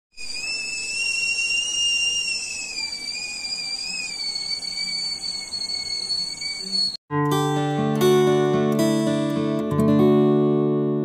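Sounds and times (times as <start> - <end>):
pressure cooker steam whistle: 0.1 - 7.0.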